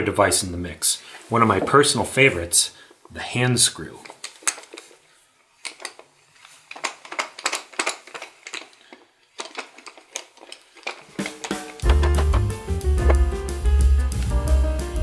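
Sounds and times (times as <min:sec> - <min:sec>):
wooden clamp clattering clicks: 0:04.0 - 0:05.0, 0:05.6 - 0:13.2.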